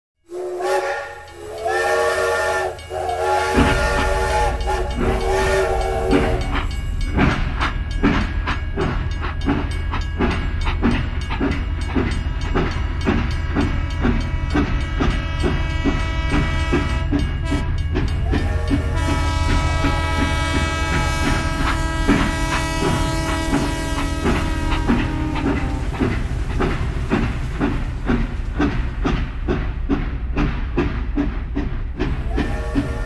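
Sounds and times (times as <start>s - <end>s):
low train rumble: 0.2s - 33.0s
chime whistle blasts: 0.3s - 6.9s
steam train chuffing and clatter: 0.3s - 33.0s.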